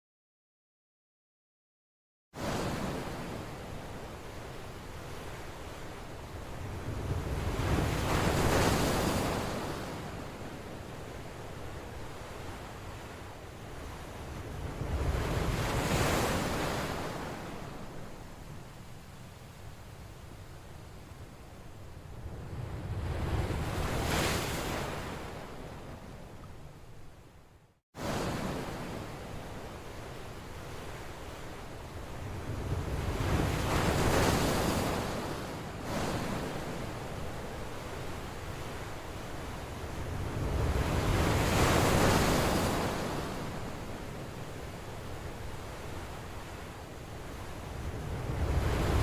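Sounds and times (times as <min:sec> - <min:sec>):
wind rumbling on microphone: 0:31.8 - 0:49.0.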